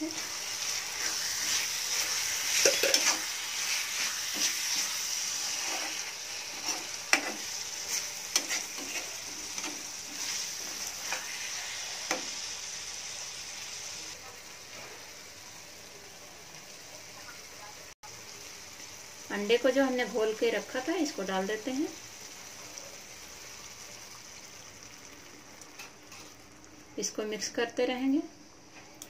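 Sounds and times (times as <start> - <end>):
masala sizzling in a pan: 0.0 - 29.0
metal spatula scraping a pan: 0.1 - 12.3, 25.8 - 26.4.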